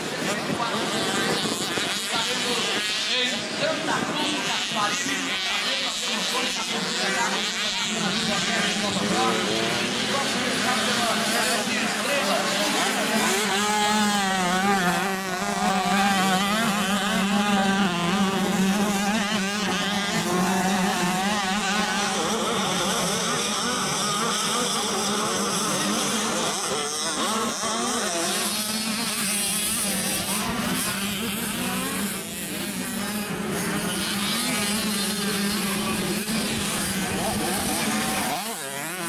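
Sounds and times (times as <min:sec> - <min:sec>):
motocross bike engines racing: 0:00.0 - 0:39.0.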